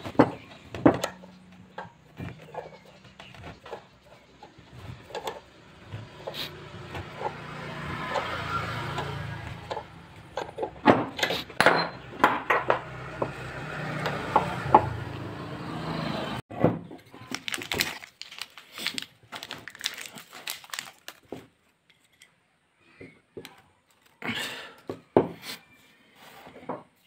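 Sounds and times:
metal clanks and clinks: 9.0 - 12.9.

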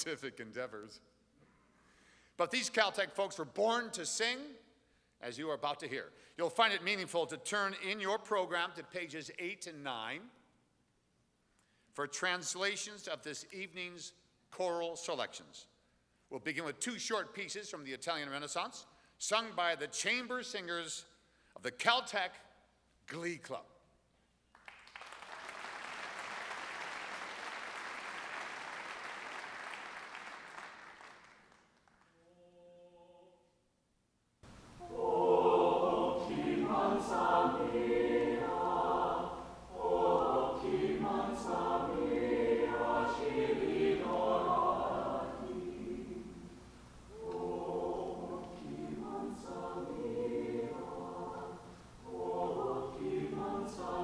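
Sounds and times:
audience applause: 24.6 - 32.0
choir singing a cappella: 34.8 - 54.0.

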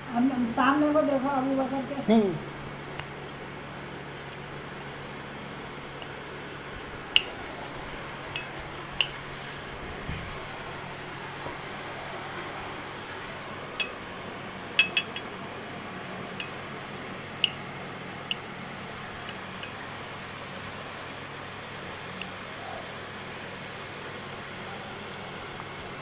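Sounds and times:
faint steady hum: 0.0 - 26.0
metal spoon clinking on plate: 14.8 - 15.3.

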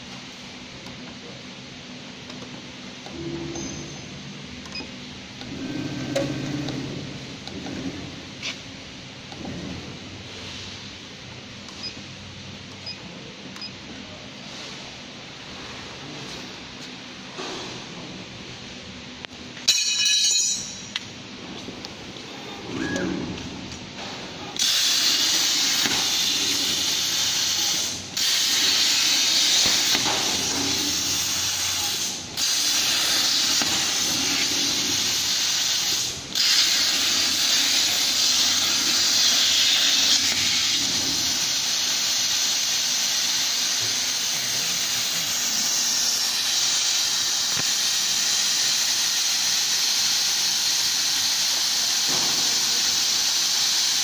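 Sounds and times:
plasma cutter hissing: 24.5 - 54.0.

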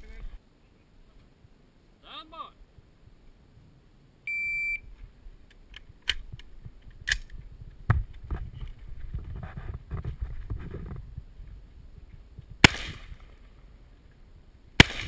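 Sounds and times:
shot timer beep: 4.3 - 4.8.

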